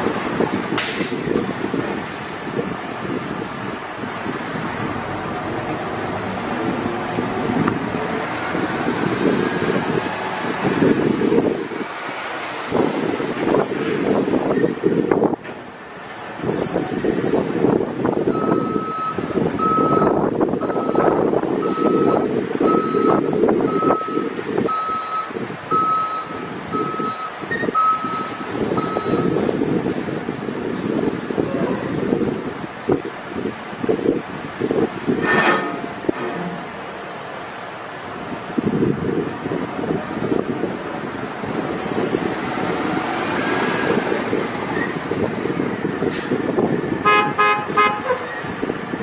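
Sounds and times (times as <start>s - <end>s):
wind on microphone: 0.0s - 36.8s, 38.0s - 49.0s
diesel truck engine: 0.0s - 49.0s
truck backup alarm beeping: 18.3s - 29.4s.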